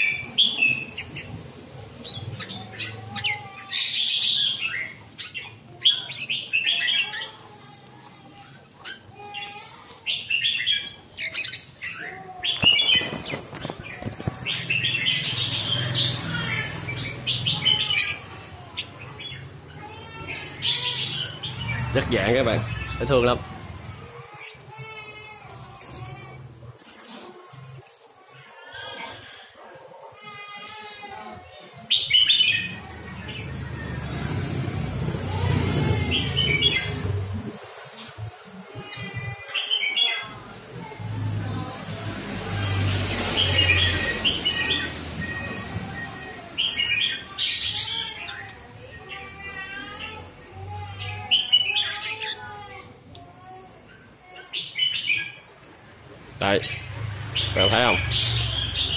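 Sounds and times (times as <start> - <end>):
bird chirps and warbles: 0.0 - 23.4, 53.9 - 55.6, 56.4 - 58.9.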